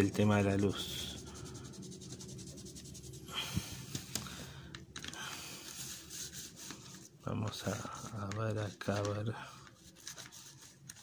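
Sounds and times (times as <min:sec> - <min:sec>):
pencil scratching on paper: 0:00.0 - 0:03.3.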